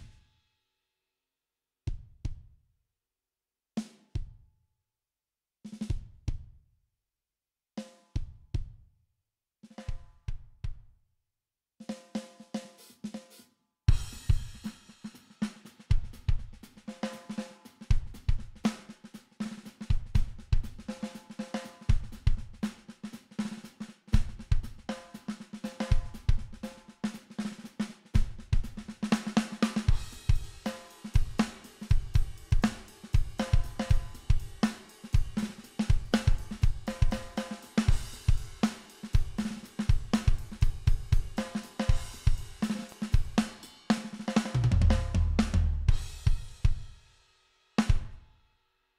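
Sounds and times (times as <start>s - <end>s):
saturated rock drum beat: 0.0s - 0.4s, 1.9s - 2.5s, 3.8s - 4.4s, 5.7s - 6.6s, 7.8s - 8.8s, 9.7s - 10.9s, 11.8s - 48.4s.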